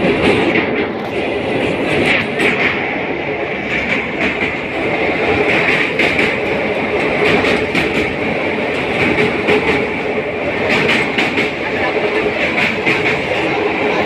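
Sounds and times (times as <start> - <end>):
wheels clicking over track: 3.6 - 13.6.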